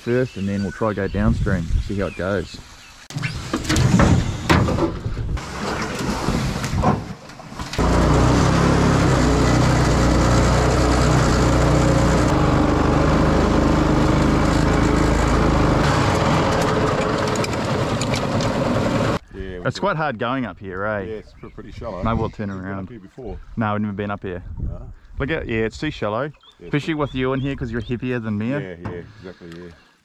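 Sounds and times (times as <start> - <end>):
small petrol engine running: 7.8 - 19.2.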